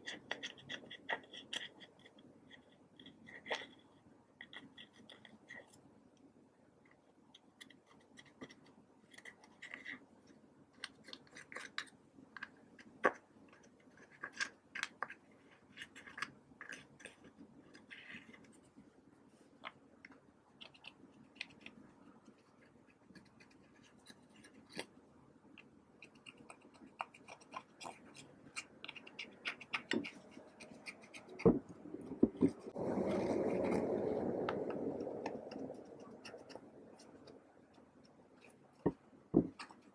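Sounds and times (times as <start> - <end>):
plastic knife scraping eyeshadow: 0.0 - 5.8, 10.7 - 18.7, 26.0 - 33.9.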